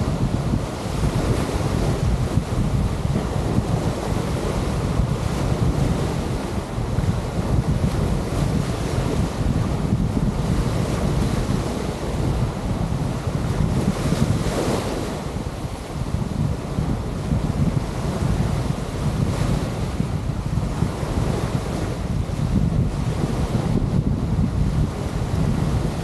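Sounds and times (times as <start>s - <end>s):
surf washing on shore: 0.0s - 26.0s
wind buffeting microphone: 0.0s - 26.0s.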